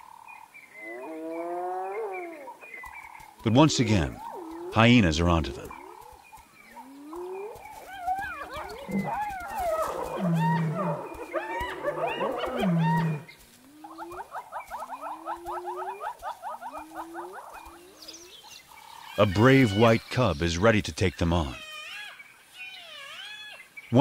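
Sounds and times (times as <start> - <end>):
hyena low growls: 0.8 - 2.6, 6.8 - 14.1
hyena cackling: 6.8 - 18.3
hyenas whooping and squealing: 6.8 - 18.4.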